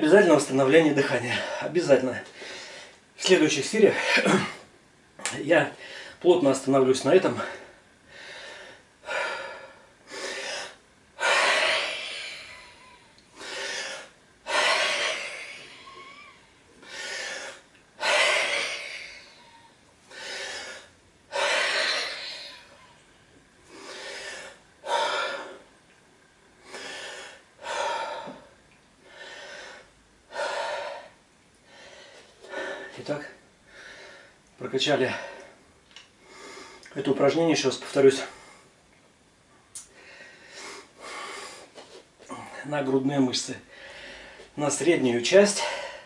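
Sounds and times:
man breathing hard: 2.3s - 3.0s, 5.8s - 6.2s, 7.4s - 22.8s, 23.6s - 25.7s, 26.6s - 34.4s, 39.9s - 42.7s, 43.7s - 44.5s, 45.5s - 46.0s.

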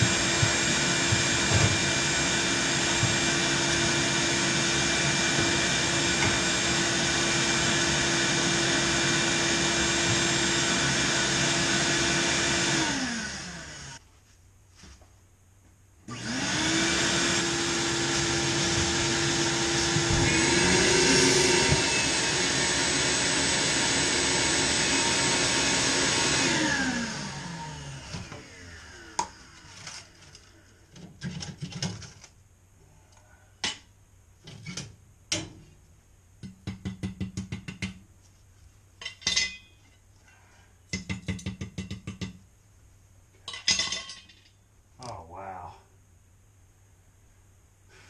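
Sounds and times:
shop vacuum motor: 0.0s - 14.0s, 16.1s - 30.3s.

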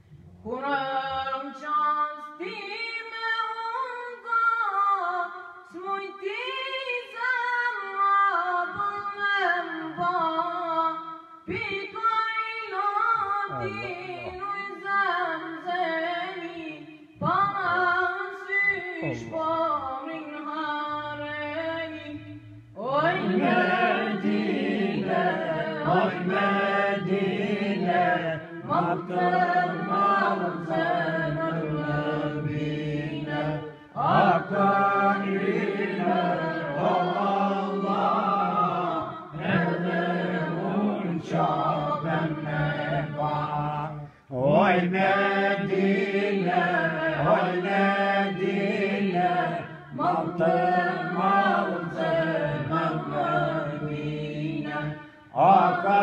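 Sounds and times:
boy singing unaccompanied: 13.1s - 14.8s, 17.2s - 22.0s
voices chanting: 22.8s - 54.8s.

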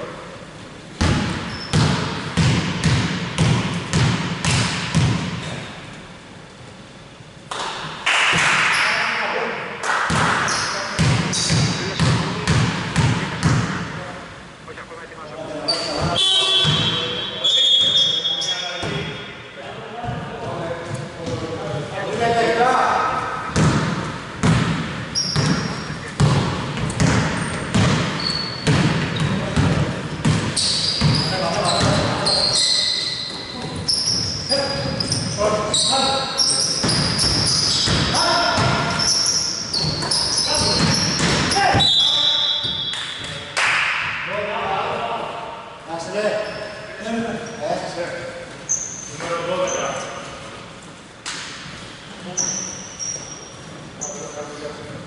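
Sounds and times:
basketball bouncing on hardwood floor: 1.0s - 5.4s, 23.5s - 25.6s, 26.2s - 32.1s, 36.8s - 38.9s, 39.8s - 41.9s
sneaker squeaks: 1.0s - 5.8s, 8.6s - 9.2s, 10.4s - 12.3s, 15.6s - 19.4s, 24.4s - 43.5s, 46.3s - 47.6s, 48.6s - 50.4s, 52.2s - 54.6s.

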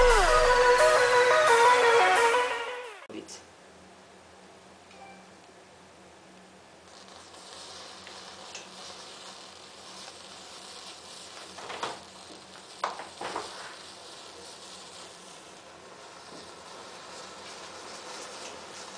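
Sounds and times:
crackles: 6.4s - 18.9s.

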